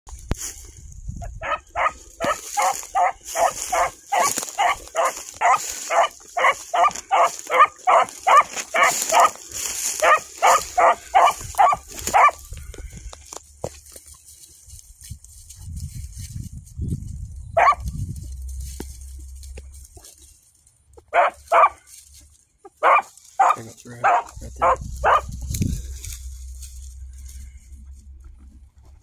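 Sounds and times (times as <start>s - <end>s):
hound barking: 1.3s - 12.5s, 17.6s - 17.9s, 21.1s - 21.9s, 22.7s - 25.4s.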